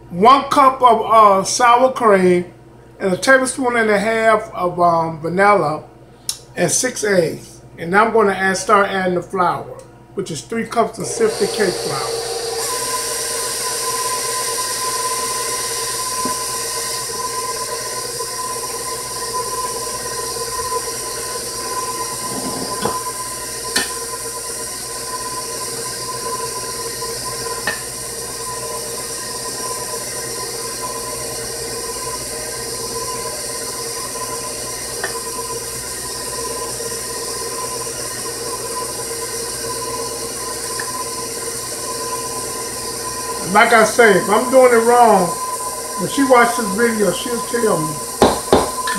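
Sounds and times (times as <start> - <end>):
stand mixer motor whine: 11.0 - 48.9.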